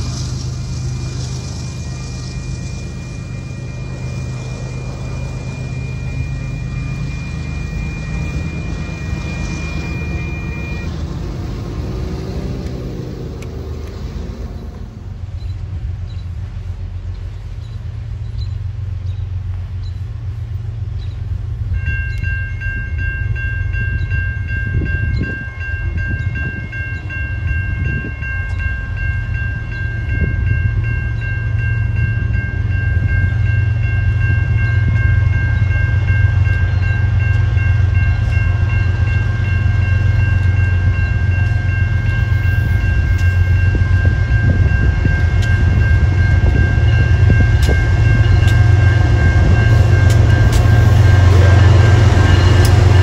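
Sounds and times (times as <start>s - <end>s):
steady high ringing: 0.0s - 13.8s, 17.7s - 53.0s
train rumbling: 0.0s - 53.0s
sharp ticks: 47.5s - 48.7s, 49.7s - 51.0s, 52.6s - 52.9s.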